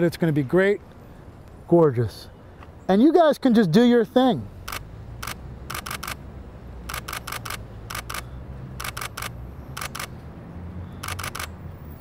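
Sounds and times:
low steady background noise: 0.0 - 12.0
camera shutter clicks: 4.6 - 6.2, 6.8 - 10.1, 11.0 - 11.6.

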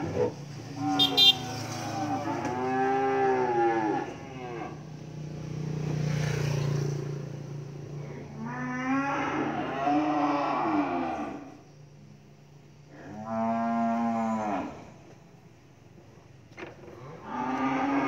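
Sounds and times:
calves mooing: 0.8 - 4.8, 8.4 - 11.5, 13.0 - 14.9, 17.0 - 18.0.

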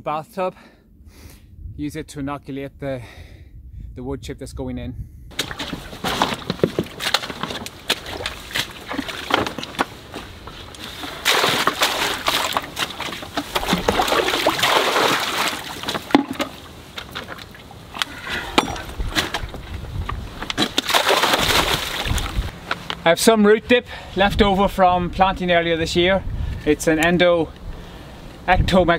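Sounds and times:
plastic buckets knocking: 5.3 - 17.5, 18.4 - 22.5
soil pouring into water: 10.8 - 17.6.

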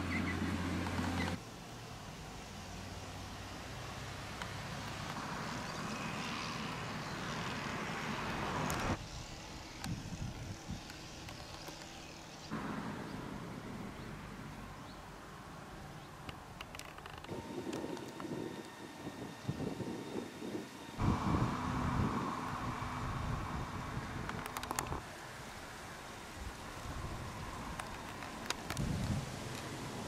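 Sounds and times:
vehicle passing: 21.0 - 24.3.

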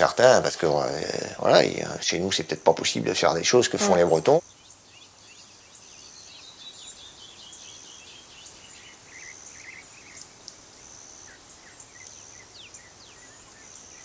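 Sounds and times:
insects chirping: 0.0 - 14.0
light outdoor hiss: 0.0 - 14.0.

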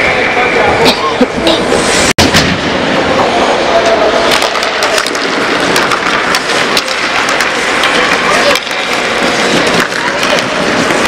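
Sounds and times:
voices in a hall: 0.0 - 1.8, 2.8 - 6.0
skates scraping on ice: 3.6 - 11.0
hockey sticks clacking: 3.7 - 11.0.

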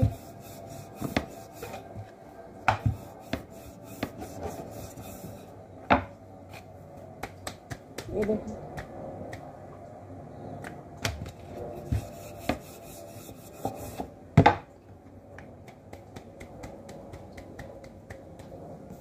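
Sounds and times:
hands slapping dough: 0.0 - 1.8, 2.6 - 5.2, 7.2 - 9.6, 10.6 - 12.7, 15.3 - 19.0.

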